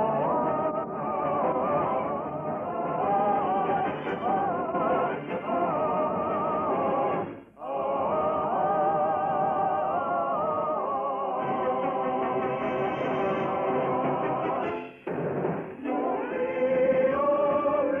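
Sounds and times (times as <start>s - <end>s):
operatic singing: 0.0s - 14.9s, 15.6s - 18.0s.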